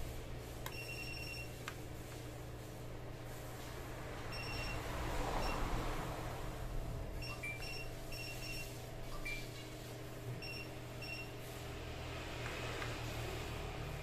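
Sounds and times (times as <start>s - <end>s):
low steady hum: 0.0s - 12.5s
multimeter short high beeps: 0.7s - 1.6s, 4.3s - 4.8s, 7.2s - 9.6s, 10.4s - 11.3s.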